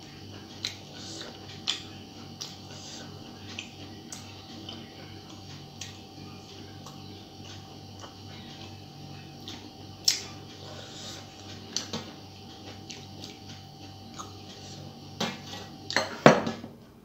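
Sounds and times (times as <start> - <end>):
faint steady hum: 0.0 - 17.0
dishes clicking and knocking: 15.2 - 16.8.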